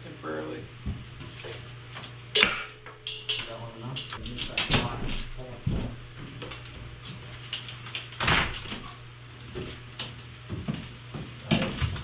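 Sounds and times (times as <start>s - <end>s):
wooden knocks and bumps: 4.7s - 6.9s.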